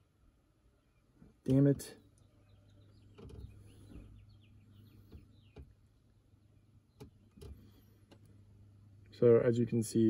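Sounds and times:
bird chirping: 0:00.6 - 0:07.9.

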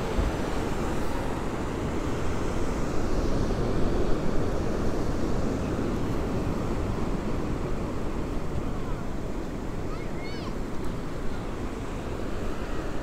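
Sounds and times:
wind rushing over microphone: 0:00.0 - 0:09.9.

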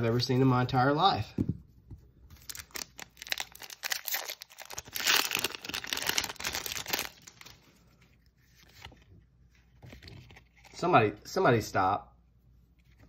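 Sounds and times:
foil wrapper tearing and crinkling: 0:02.4 - 0:07.6.

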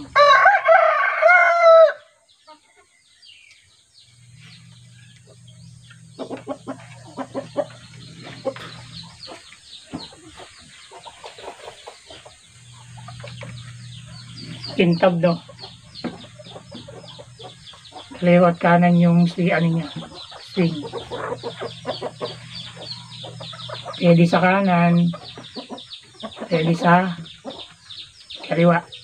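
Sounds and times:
rooster crowing: 0:00.0 - 0:02.2
chickens clucking: 0:00.0 - 0:29.0
low steady hum: 0:03.0 - 0:29.0.

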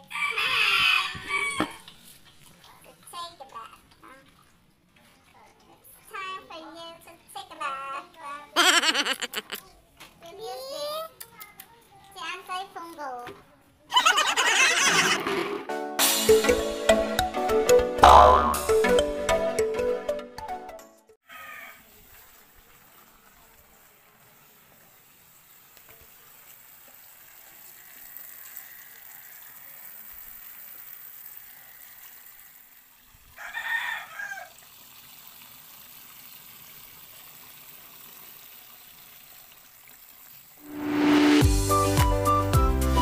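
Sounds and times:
rooster crowing: 0:00.0 - 0:01.8, 0:21.3 - 0:21.8, 0:33.4 - 0:34.6.

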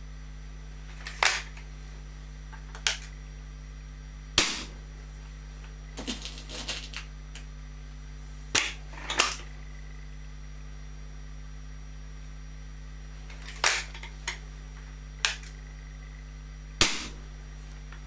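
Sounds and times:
air rifle shot: 0:04.4 - 0:04.8, 0:16.8 - 0:17.3.

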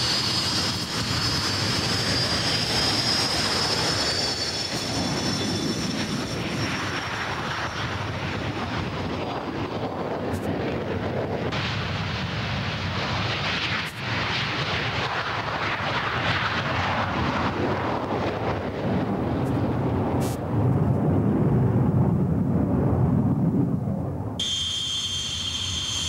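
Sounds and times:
high jet whine: 0:00.0 - 0:16.0, 0:17.5 - 0:20.7, 0:24.4 - 0:26.0
jet engine roar: 0:00.0 - 0:26.0.

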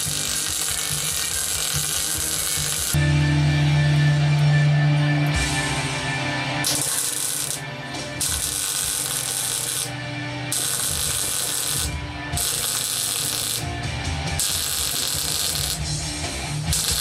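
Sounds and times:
welder arc crackling: 0:00.0 - 0:03.0, 0:06.6 - 0:17.0
rock music: 0:00.0 - 0:17.0.

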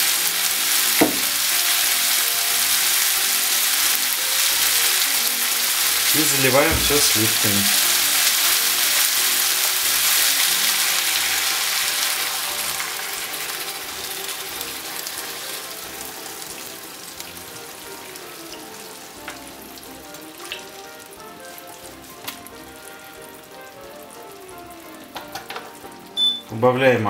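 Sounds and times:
food sizzling in a frying pan: 0:00.0 - 0:26.5.

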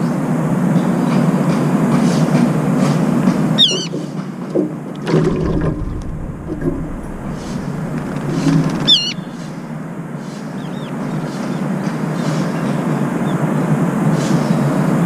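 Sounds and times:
low traffic hum: 0:00.4 - 0:15.0
shrill wavering bird call: 0:03.6 - 0:04.0, 0:08.8 - 0:09.6
bird splashing in water: 0:05.0 - 0:09.8.

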